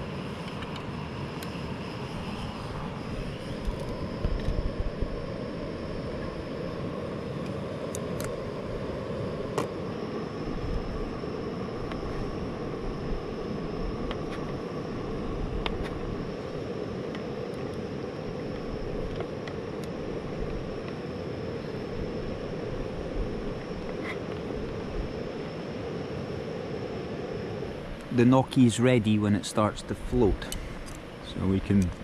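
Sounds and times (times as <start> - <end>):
gas burner hissing: 0.0 - 32.0.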